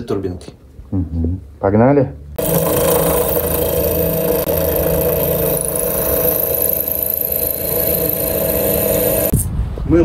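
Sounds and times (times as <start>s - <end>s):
drill press drilling sheet metal: 2.4s - 9.3s.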